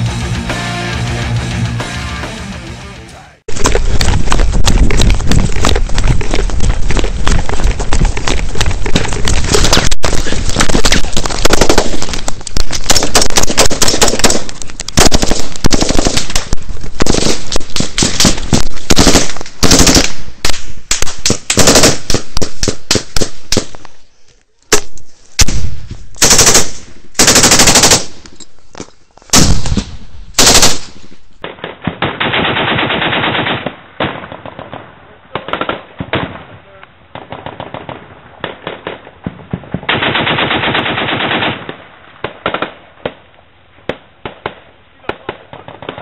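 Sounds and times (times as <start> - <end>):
machine-gun fire: 8.8 - 23.7, 25.4 - 28.2, 29.4 - 34.8, 37.2 - 42.8.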